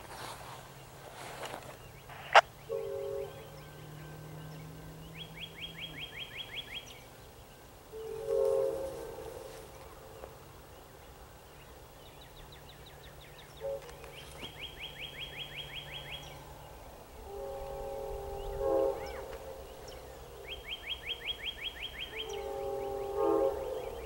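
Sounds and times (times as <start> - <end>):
songbird trilling: 2.0 - 7.0
train air horn blasts: 2.1 - 6.7, 7.8 - 10.2, 16.2 - 24.0.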